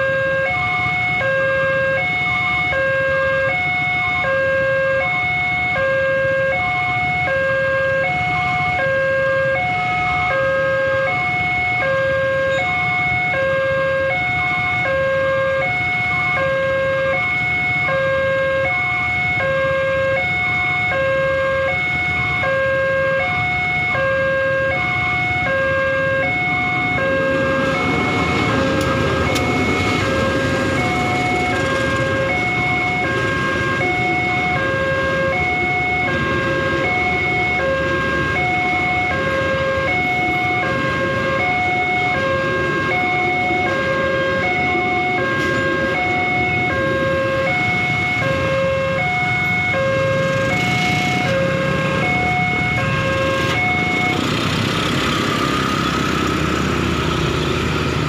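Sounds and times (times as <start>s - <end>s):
level crossing two-tone alarm: 0.0s - 55.6s
idling traffic rumble: 0.0s - 58.0s
diesel train passing: 24.6s - 58.0s.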